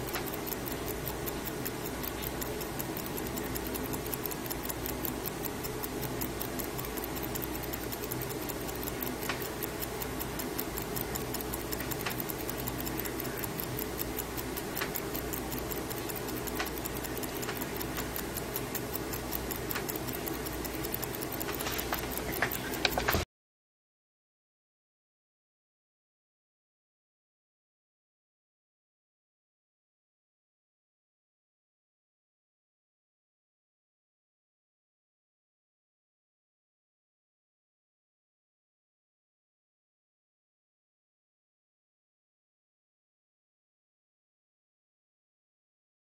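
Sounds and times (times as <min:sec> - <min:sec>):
steady low hum: 0:00.0 - 0:23.2
wristwatch ticking fast: 0:00.0 - 0:23.2.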